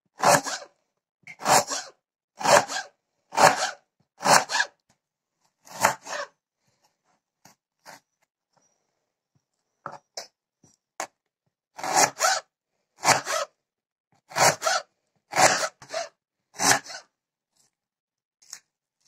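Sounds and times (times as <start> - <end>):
knife slicing onion on board: 1.4 - 4.7, 5.7 - 6.3, 11.8 - 12.4, 14.3 - 17.0.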